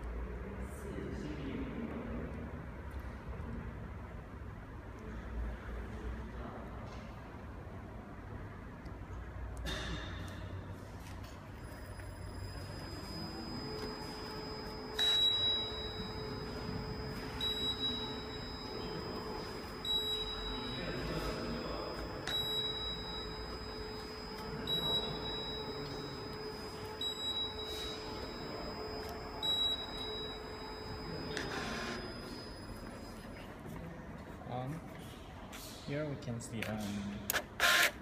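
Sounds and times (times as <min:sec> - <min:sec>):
conveyor humming: 0:00.0 - 0:36.5.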